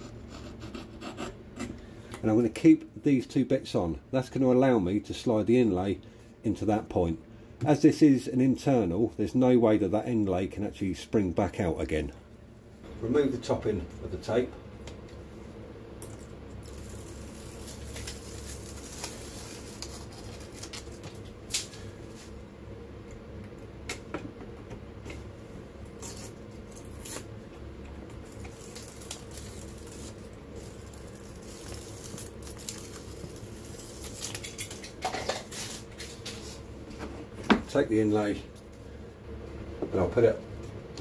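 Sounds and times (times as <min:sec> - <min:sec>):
steady low hum: 0:00.0 - 0:41.0
backing film crinkling: 0:16.5 - 0:22.2, 0:28.0 - 0:36.4.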